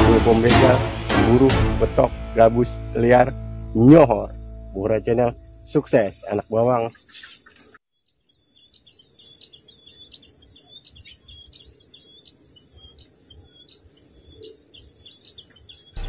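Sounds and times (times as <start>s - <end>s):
high-pitched insect drone: 0.0s - 7.5s
birds chirping: 2.0s - 16.0s.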